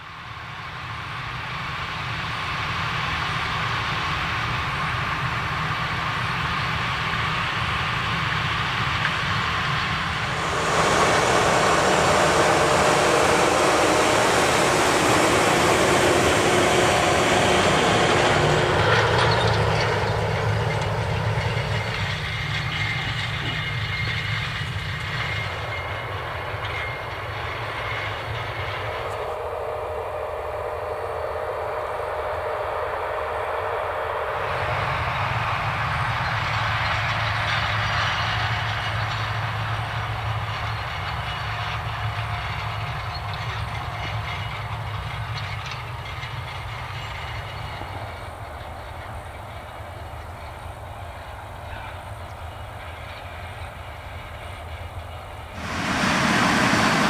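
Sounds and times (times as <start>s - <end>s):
rattle of tracks and implement: 0.0s - 57.0s
tractor diesel engine under load: 9.5s - 23.6s, 55.6s - 57.0s.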